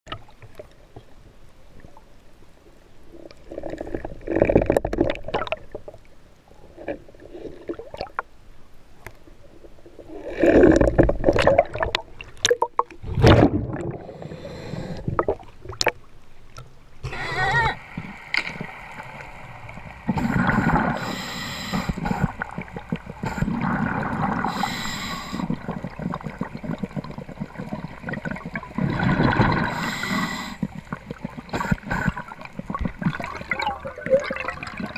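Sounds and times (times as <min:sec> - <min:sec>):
underwater water rushing and gurgling: 0:00.1 - 0:34.9
faint hum: 0:13.2 - 0:34.9.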